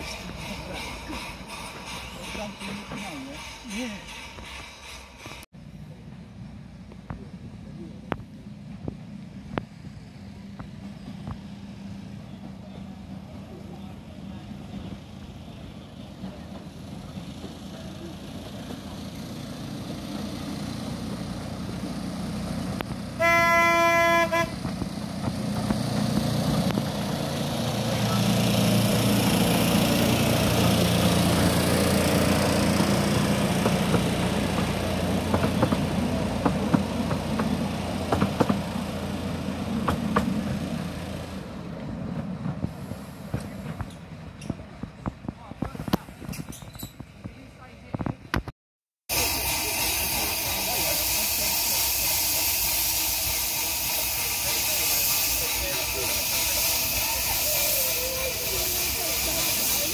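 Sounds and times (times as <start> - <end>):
small diesel locomotive passing: 0.0 - 45.3, 49.1 - 59.9
train horn blast: 23.2 - 24.7
wheels clicking over rails: 24.6 - 41.4.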